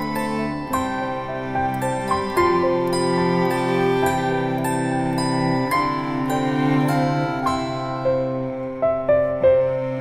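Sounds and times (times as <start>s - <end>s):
calm new-age music: 0.0s - 10.0s.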